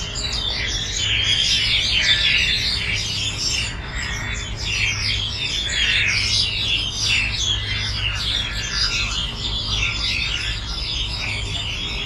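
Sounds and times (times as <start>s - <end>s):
birds chirping and chattering: 0.0s - 12.0s
low city rumble: 0.0s - 12.0s.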